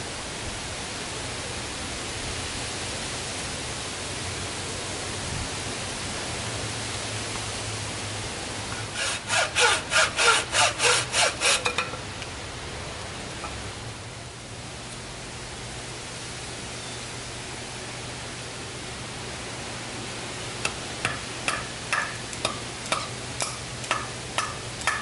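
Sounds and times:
saw cutting through wood: 8.7 - 11.9, 22.9 - 25.0.

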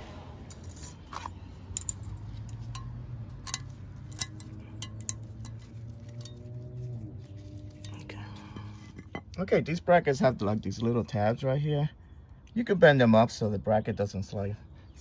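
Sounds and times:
metal clips clicking: 1.8 - 5.6.

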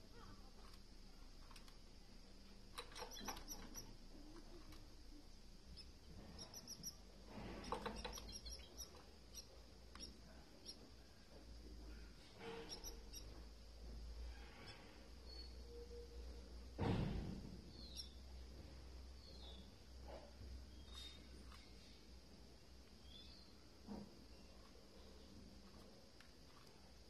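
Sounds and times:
chicks peeping: 5.8 - 7.0.

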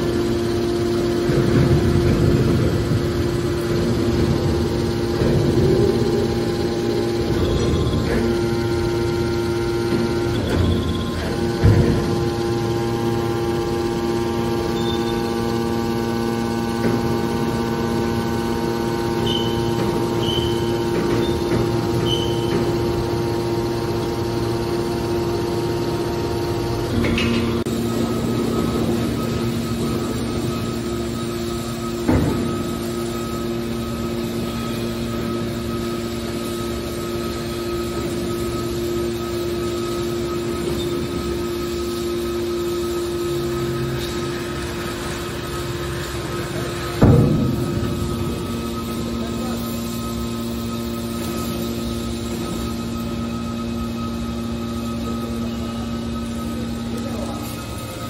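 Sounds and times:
hydraulic baler humming: 0.0 - 58.0.

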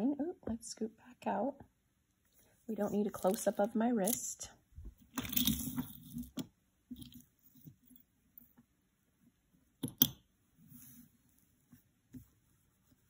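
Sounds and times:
jewelry rustling on cloth: 4.9 - 8.5.

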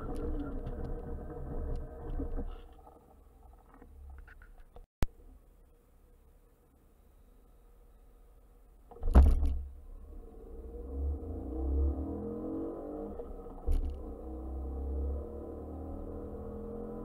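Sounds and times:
loud thump: 9.0 - 9.8
car engine revving: 9.9 - 17.0.

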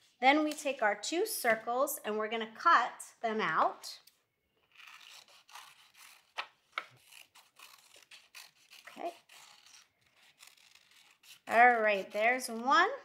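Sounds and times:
scissors snipping paper: 4.7 - 12.8.

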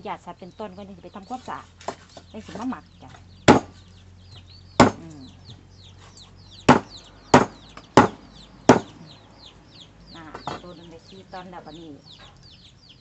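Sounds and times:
birds chirping: 0.0 - 13.0
cleaver chopping on wooden block: 3.5 - 3.8, 4.8 - 5.0, 6.7 - 8.9.

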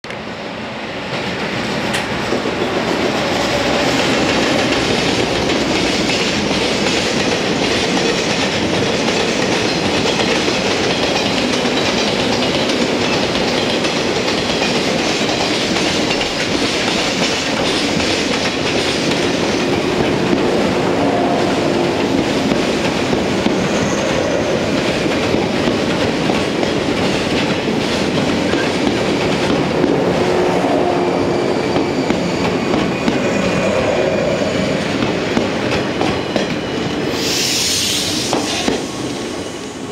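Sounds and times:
commuter train passing: 0.0 - 39.9
freight train wheels clattering: 1.0 - 20.7, 21.3 - 30.2, 31.5 - 33.7.

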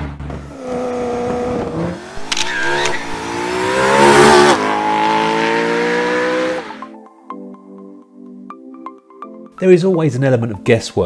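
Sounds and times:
car engine accelerating hard: 0.0 - 6.9.

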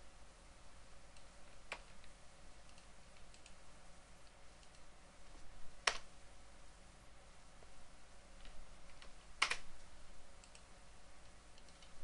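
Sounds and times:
keyboard and mouse clicks: 1.1 - 3.6, 4.6 - 6.1, 8.4 - 10.7, 11.5 - 12.0.

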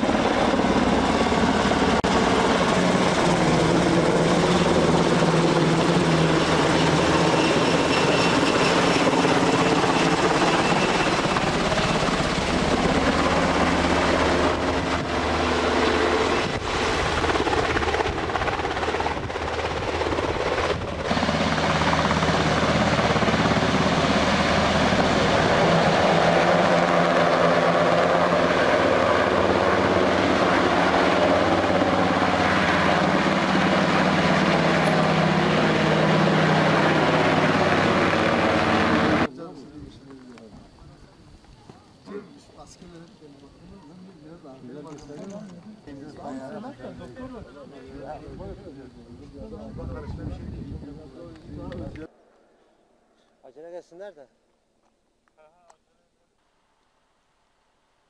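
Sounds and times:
helicopter flying low: 0.0 - 39.4.

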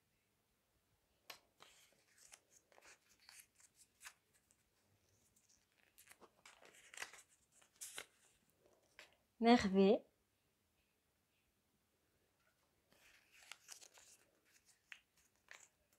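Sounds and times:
paper rustling and crackling: 1.3 - 9.2, 12.9 - 15.9.

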